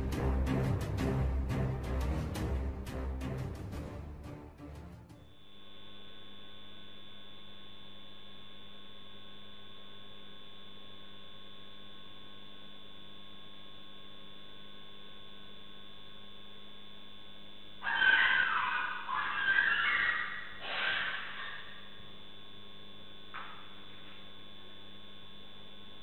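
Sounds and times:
electrical hum with tones: 0:00.0 - 0:26.0.

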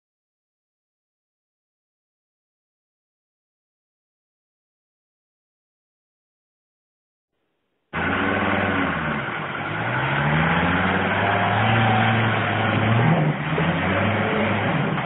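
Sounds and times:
off-road vehicle engine revving: 0:08.0 - 0:15.0.

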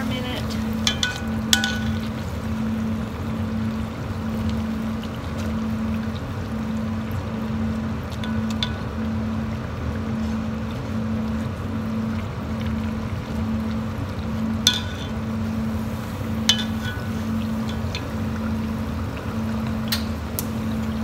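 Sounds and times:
low hum: 0:00.0 - 0:21.0
tortilla sizzling in hot oil: 0:00.0 - 0:21.0
metal tongs clicking against pot: 0:16.5 - 0:18.1.

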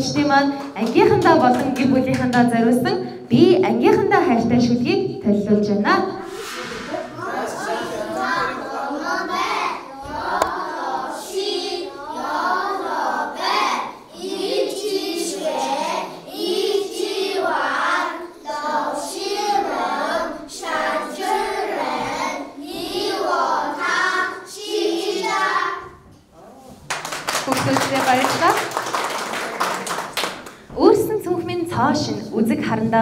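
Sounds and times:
children singing: 0:06.9 - 0:26.0.

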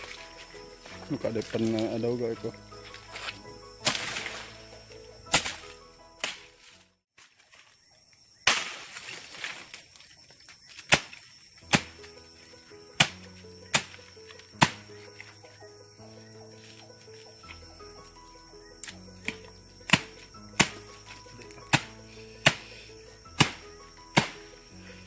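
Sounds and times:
leaves rustling: 0:00.0 - 0:25.0
machete chopping: 0:03.8 - 0:04.4, 0:05.3 - 0:06.5, 0:08.4 - 0:09.7, 0:10.7 - 0:12.0, 0:13.0 - 0:14.0, 0:14.6 - 0:14.8, 0:19.2 - 0:20.9, 0:21.6 - 0:22.7, 0:23.4 - 0:24.5.

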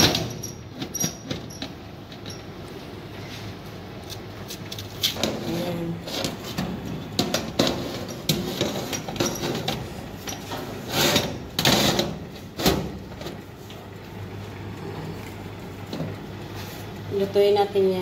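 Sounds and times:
metal trays scraping oven racks: 0:05.2 - 0:13.5.

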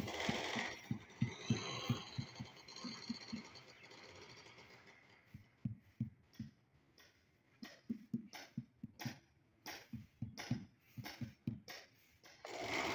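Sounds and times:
rubber mallet knocking tile: 0:05.6 - 0:12.0.

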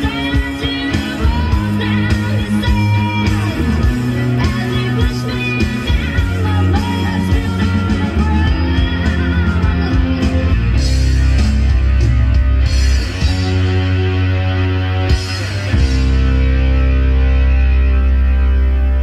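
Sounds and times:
rock song over loudspeakers: 0:00.0 - 0:19.0
deep bass note: 0:08.7 - 0:19.0.

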